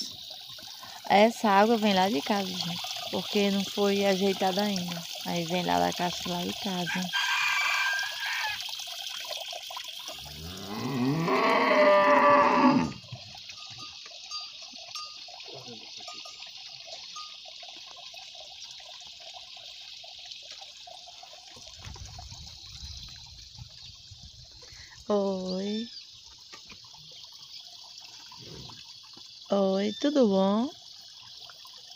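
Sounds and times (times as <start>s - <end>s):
cow mooing: 10.3s - 13.0s.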